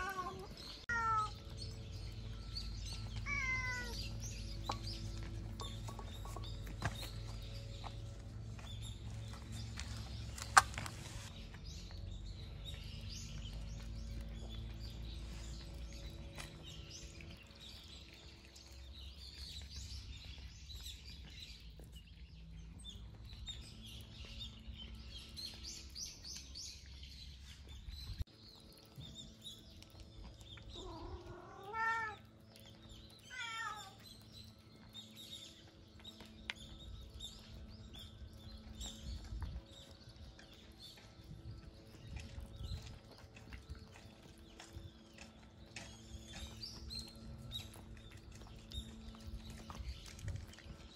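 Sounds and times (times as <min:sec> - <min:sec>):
cat meowing: 0:00.0 - 0:01.4, 0:03.2 - 0:04.0, 0:30.8 - 0:32.2, 0:33.3 - 0:34.0.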